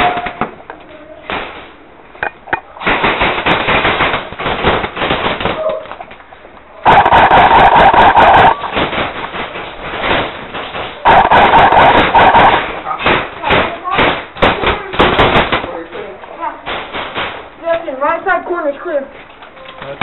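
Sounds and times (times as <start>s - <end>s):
airsoft guns firing full-auto: 2.8s - 5.7s, 6.8s - 15.8s.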